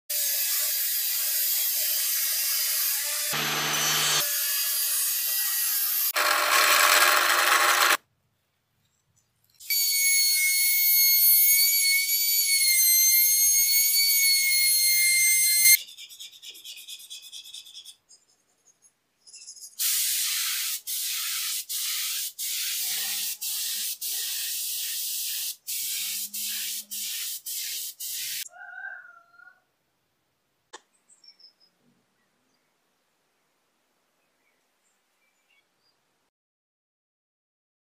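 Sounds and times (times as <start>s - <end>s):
table saw cutting board: 0.1s - 8.0s
router whining: 2.9s - 4.9s, 5.6s - 8.0s.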